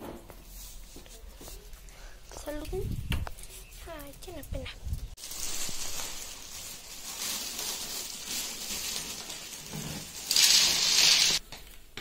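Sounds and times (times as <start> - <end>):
plastic bag rustling: 3.4 - 11.4
water pouring and splashing: 5.2 - 11.4.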